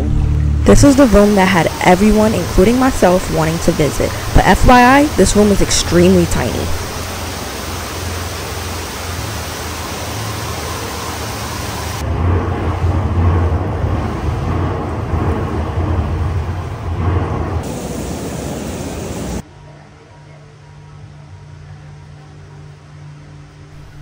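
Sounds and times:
artificial rain hissing: 0.7s - 12.0s, 17.6s - 19.4s
low thunder rumble: 12.0s - 19.4s.

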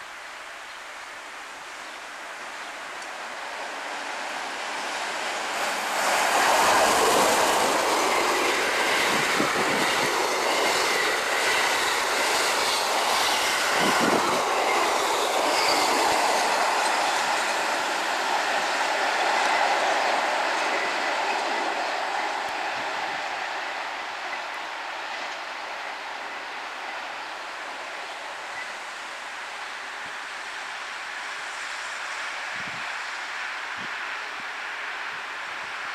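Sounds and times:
train wheels clattering over rails: 3.6s - 23.4s
faint high wheel squeal: 7.8s - 17.8s.

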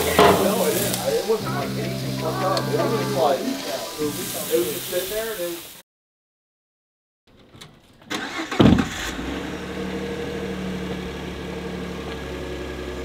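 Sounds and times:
outboard motor starting and idling: 8.1s - 13.0s.

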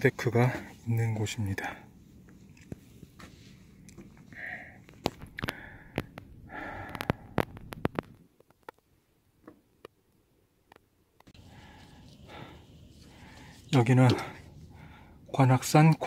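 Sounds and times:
person sniffing and breathing: 4.3s - 7.5s, 11.4s - 15.2s
sharp clicks and knocks: 6.9s - 10.0s.

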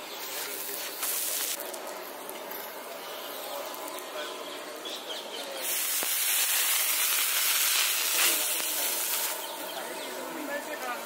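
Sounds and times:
water sizzling on a hot griddle: 0.0s - 2.6s, 5.6s - 9.6s
street stall background: 0.0s - 11.0s.

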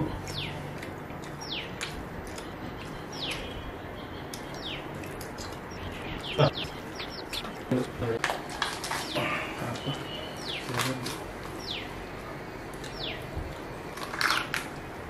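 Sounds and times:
bird chirps sliding down: 5.7s - 7.6s.

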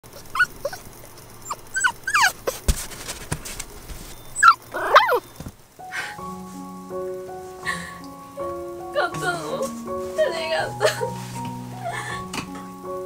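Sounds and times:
puppy whimpering and yipping: 0.1s - 2.6s, 4.3s - 5.3s.

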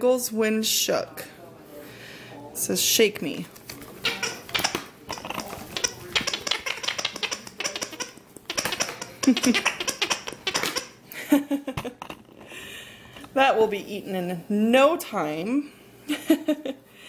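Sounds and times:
toy giggling: 4.0s - 12.4s.

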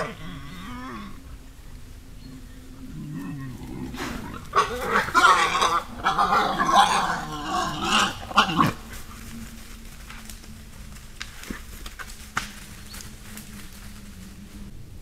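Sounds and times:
boars squealing and growling: 0.0s - 1.3s, 2.8s - 9.0s
boars grunting: 0.0s - 9.3s.

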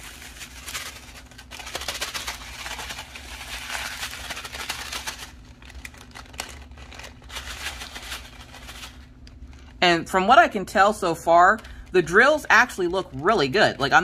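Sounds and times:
plastic bag crinkling: 0.0s - 9.8s
resin beads rattling in a bag: 0.0s - 9.8s.

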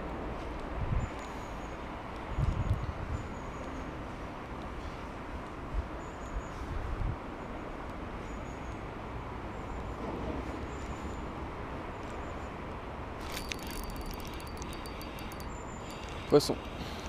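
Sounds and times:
fishing reel clicking: 13.2s - 16.8s.

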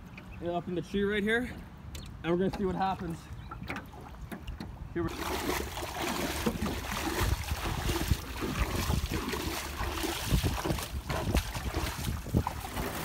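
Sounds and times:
water splashing around legs: 3.5s - 13.0s.

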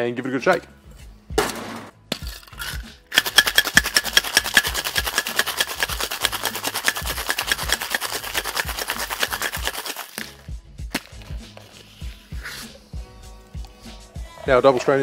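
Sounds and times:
ice rattling in metal cocktail shaker: 2.2s - 10.4s.

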